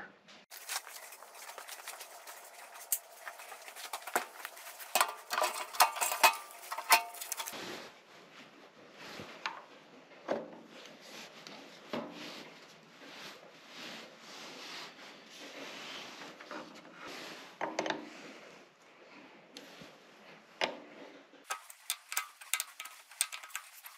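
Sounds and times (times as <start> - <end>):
metal tools clinking: 0.5 - 7.6, 21.5 - 23.9
rustling: 0.5 - 9.4, 21.5 - 23.9
ringing metal clanks: 1.7 - 7.5.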